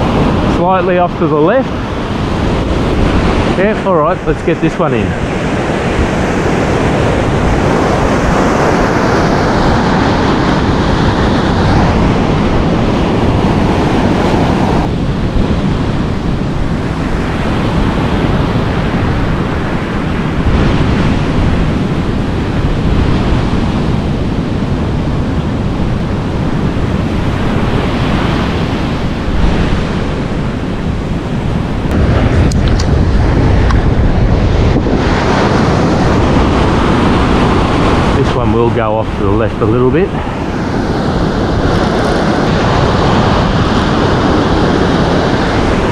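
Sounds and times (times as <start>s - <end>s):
ocean surf washing ashore: 0.0s - 45.9s
wind buffeting microphone: 0.0s - 45.9s.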